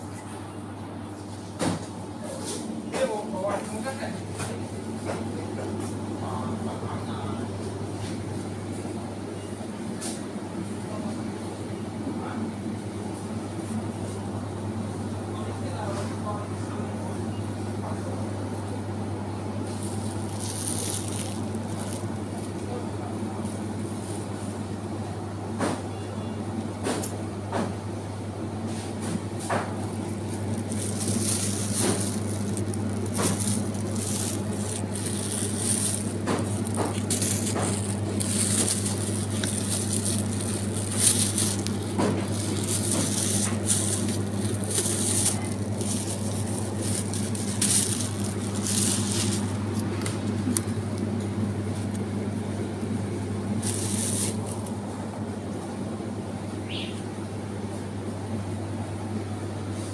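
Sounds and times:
refrigerated display cases humming: 0.0 - 59.9
short rustles and clicks: 29.5 - 50.7.

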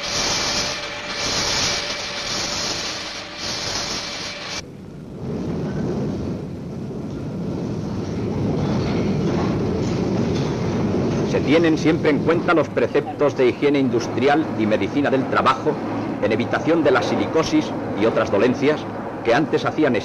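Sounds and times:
pulsing hiss: 0.0 - 4.6.

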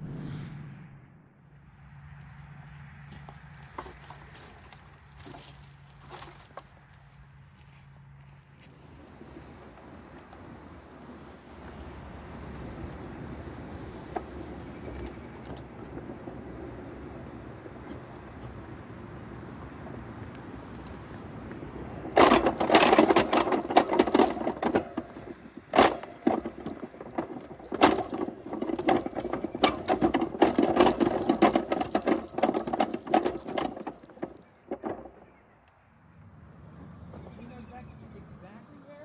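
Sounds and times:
train car clattering on track: 3.2 - 6.8, 12.7 - 35.6.

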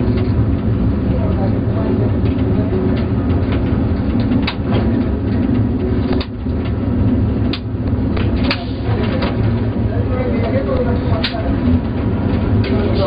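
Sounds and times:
diesel railcar engine drone: 0.0 - 13.0
sharp clacks: 7.4 - 9.4.

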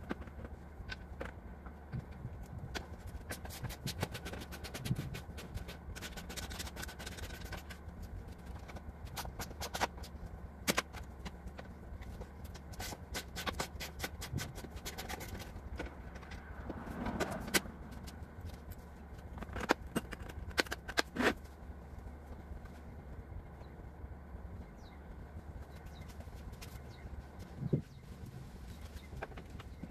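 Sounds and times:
low hum: 14.7 - 29.9.

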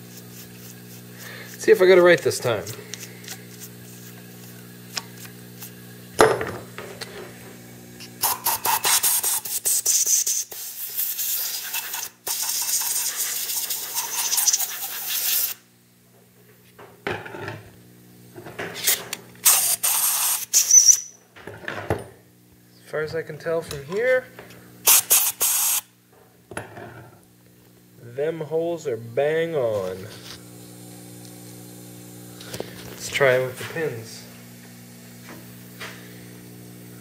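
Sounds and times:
compressed air blow gun hissing: 24.9 - 25.9
steady low hum: 25.9 - 37.0.

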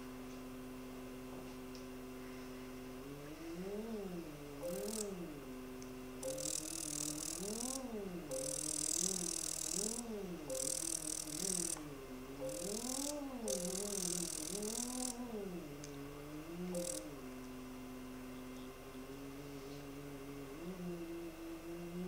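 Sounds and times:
machine tone rising and falling: 4.1 - 5.4, 6.2 - 15.7, 16.6 - 17.2.

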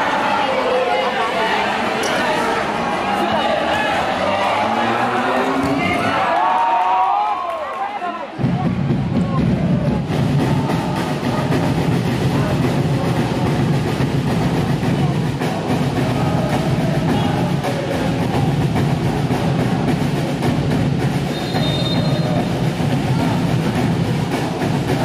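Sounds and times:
indoor crowd din: 0.0 - 25.0
referee whistle blast: 21.3 - 22.5.

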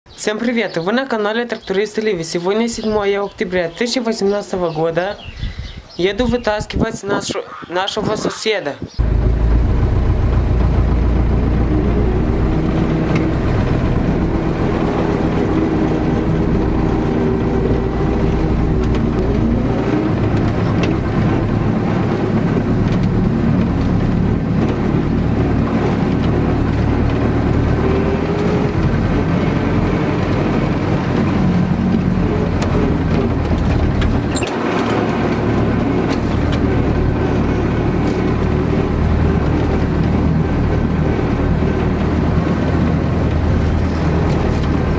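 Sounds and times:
tractor diesel engine running: 9.0 - 44.9.

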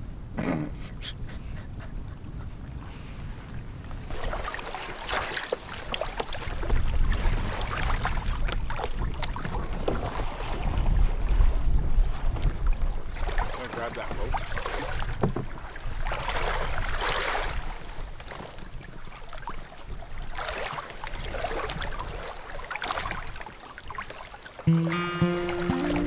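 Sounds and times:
wind rumbling on microphone: 0.0 - 4.9, 5.6 - 20.4.

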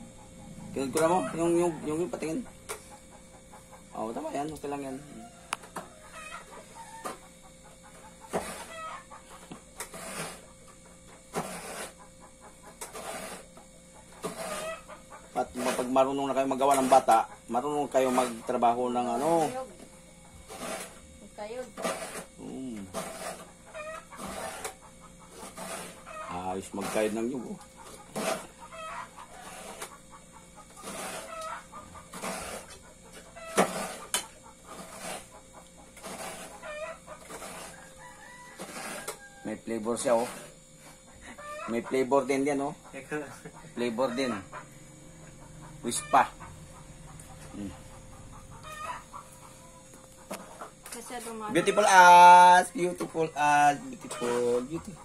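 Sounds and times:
chickens clucking: 0.0 - 55.0
coconut grated on blade: 0.7 - 2.9, 7.9 - 12.1, 12.7 - 41.0, 41.6 - 44.7, 50.3 - 55.0.

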